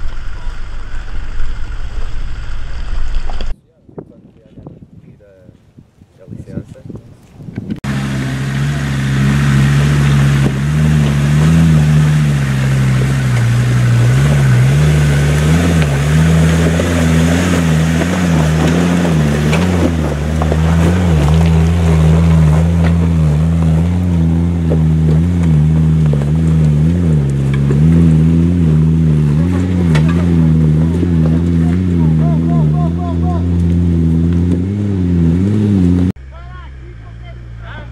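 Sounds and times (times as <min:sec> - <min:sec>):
engine running at low revs: 0:07.7 - 0:37.9.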